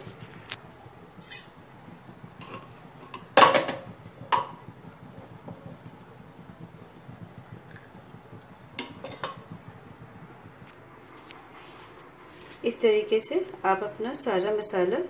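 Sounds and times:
ladle scraping metal pot: 1.2 - 1.8, 8.8 - 9.5
ladle knocking on pot: 2.4 - 5.8, 7.3 - 9.7.

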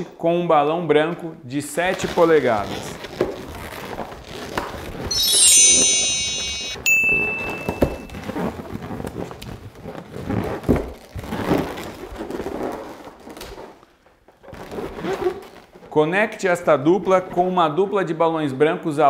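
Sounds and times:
balloons rubbing and knocking: 2.1 - 5.0, 8.1 - 13.4, 14.3 - 16.0
electronic notification tone: 5.1 - 8.1.

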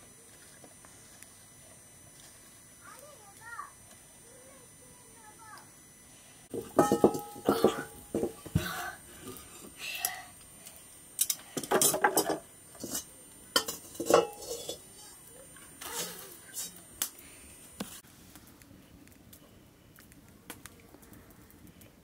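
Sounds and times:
metal cookware clanking: 6.6 - 8.4, 11.2 - 14.9.

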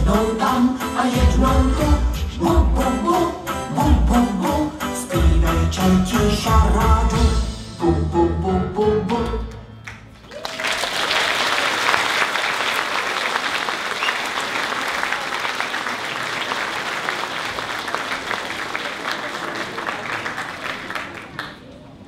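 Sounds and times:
audience applauding: 9.8 - 21.8.

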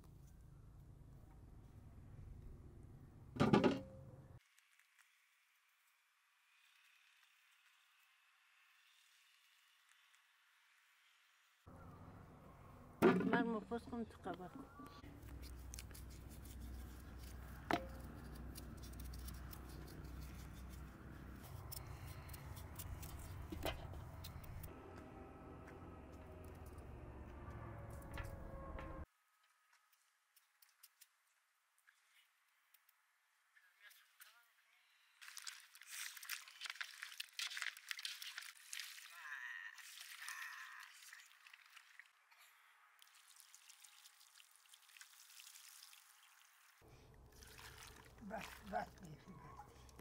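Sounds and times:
knife peeling potato: 15.1 - 24.6
water pouring into basin: 39.8 - 42.1, 43.0 - 49.0.

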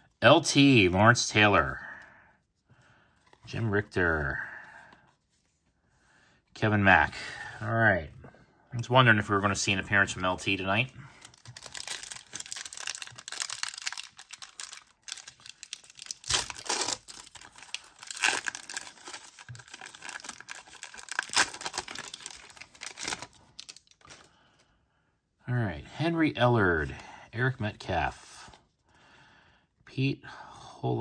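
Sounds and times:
foil wrapper tearing and crinkling: 11.2 - 24.3.

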